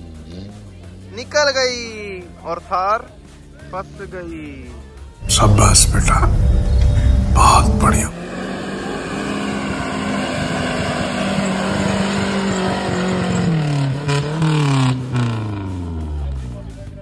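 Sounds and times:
suv engine revving hard: 0:08.3 - 0:15.6.

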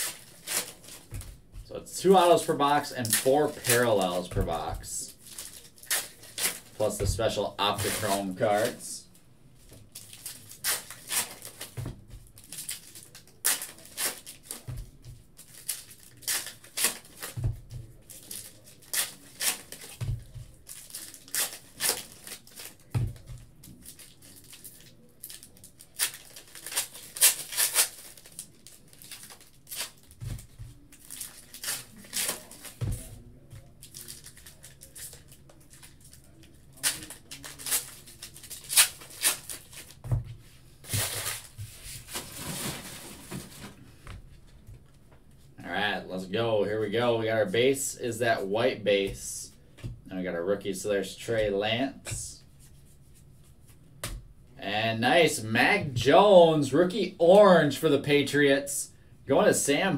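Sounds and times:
foil wrappers crinkling and tearing: 0:00.0 - 0:01.2, 0:02.1 - 0:09.0, 0:09.7 - 0:14.7, 0:15.3 - 0:17.4, 0:18.0 - 0:40.0, 0:40.8 - 0:43.6.

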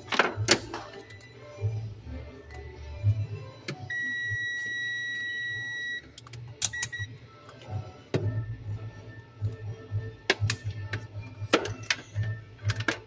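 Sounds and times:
multimeter continuity beep: 0:03.9 - 0:07.2.

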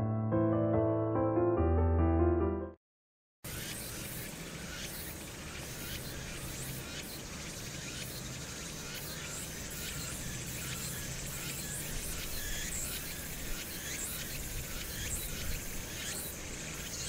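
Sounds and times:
high-pitched insect chorus: 0:03.5 - 0:17.0.

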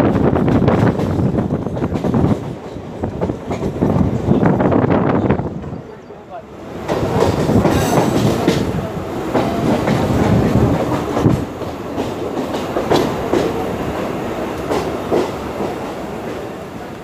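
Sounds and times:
train wheels rumbling on rail: 0:00.0 - 0:17.0
clacks over rail joints: 0:00.2 - 0:04.3, 0:06.8 - 0:15.9.

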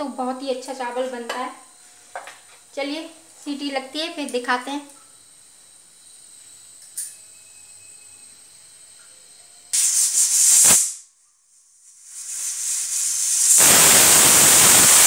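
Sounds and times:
pressure cooker steam hissing: 0:09.7 - 0:11.0, 0:12.0 - 0:15.0.

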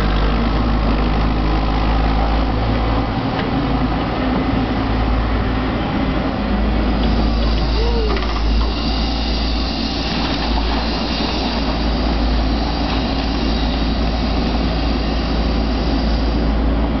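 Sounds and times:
excavator diesel engine running: 0:00.0 - 0:17.0
hydraulic arm working: 0:06.7 - 0:17.0.

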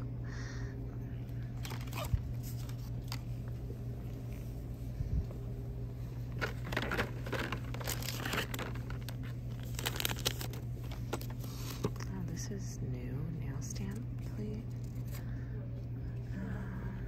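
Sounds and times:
low hum: 0:00.0 - 0:17.0
plastic packaging crinkling: 0:01.6 - 0:03.3, 0:06.3 - 0:12.0.

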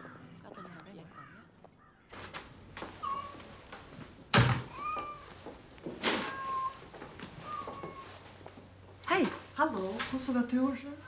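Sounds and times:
cat meowing: 0:03.0 - 0:03.4, 0:04.7 - 0:05.4, 0:06.2 - 0:06.8, 0:07.4 - 0:08.2
door shutting with a thud: 0:04.3 - 0:04.8.

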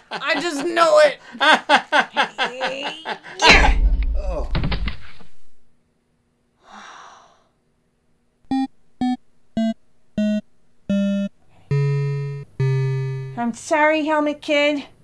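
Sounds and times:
long held low synthesizer notes: 0:08.5 - 0:13.4
staccato synthesizer notes: 0:08.5 - 0:13.4.

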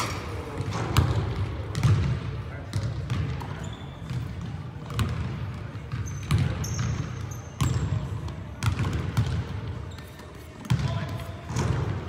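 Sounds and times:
basketball bouncing on hardwood: 0:00.6 - 0:02.1, 0:04.9 - 0:05.3, 0:08.6 - 0:09.4.

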